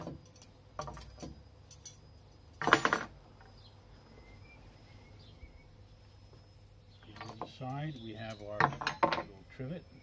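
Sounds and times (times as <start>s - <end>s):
metal rods clinking: 0.0s - 3.2s, 7.0s - 9.4s.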